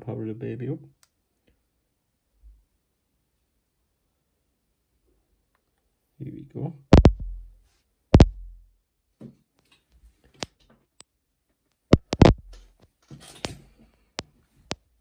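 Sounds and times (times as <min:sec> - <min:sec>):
tablet clicking and knocking on table: 0:07.0 - 0:07.2, 0:08.2 - 0:08.4, 0:12.0 - 0:12.4.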